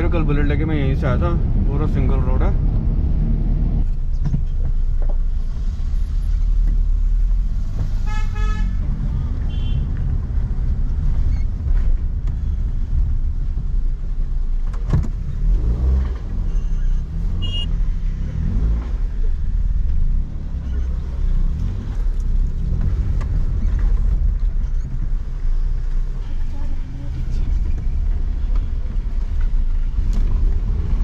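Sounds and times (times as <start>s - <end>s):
engine and road rumble: 0.0s - 31.0s.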